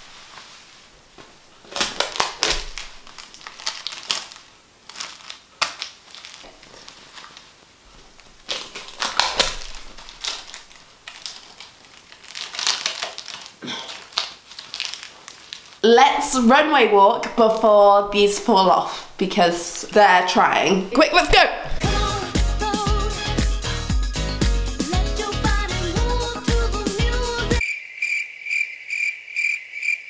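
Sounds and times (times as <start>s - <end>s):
sticky tape pulled off roll: 1.7s - 7.4s, 8.4s - 15.6s.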